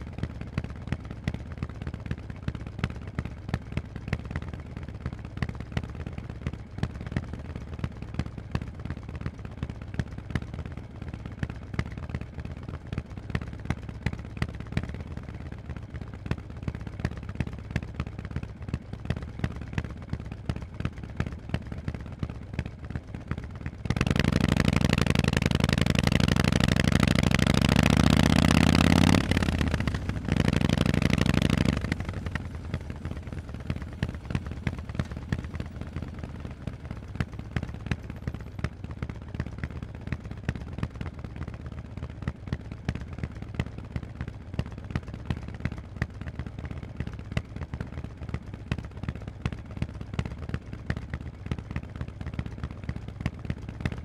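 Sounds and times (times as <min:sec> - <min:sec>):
motorcycle engine revving: 0:23.8 - 0:38.0.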